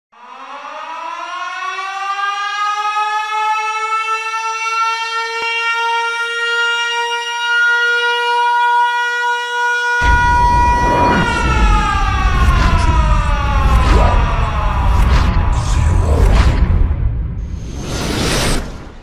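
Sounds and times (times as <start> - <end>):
siren winding up: 10.0 - 15.5.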